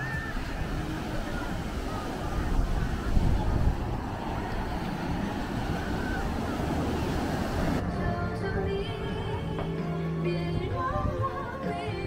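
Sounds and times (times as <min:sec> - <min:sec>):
music: 0:00.0 - 0:03.8, 0:07.8 - 0:12.0
wind buffeting microphone: 0:00.0 - 0:09.8
faint distant voices: 0:00.0 - 0:12.0
surf washing: 0:00.0 - 0:12.0.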